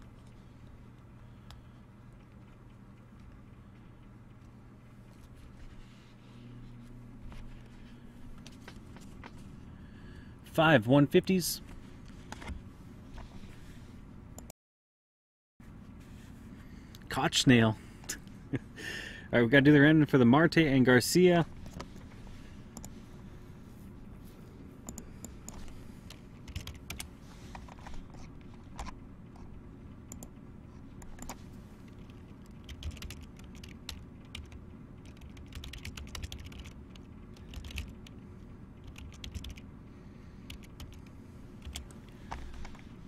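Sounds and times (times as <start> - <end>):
faint steady hum: 0.0 - 14.5, 15.6 - 43.0
keyboard typing: 24.9 - 30.4, 31.0 - 38.2, 38.8 - 39.6, 40.4 - 42.8.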